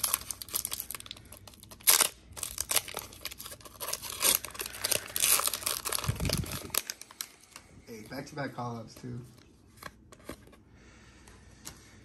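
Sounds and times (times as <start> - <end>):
foil wrapper ripping and crinkling: 0.0 - 7.6.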